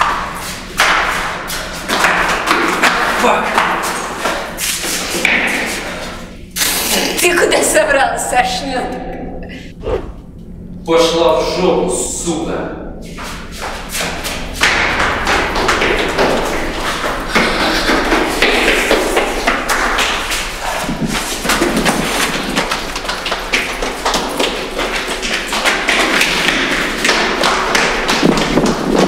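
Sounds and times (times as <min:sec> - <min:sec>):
running footsteps on concrete: 0:00.0 - 0:06.2, 0:13.1 - 0:29.0.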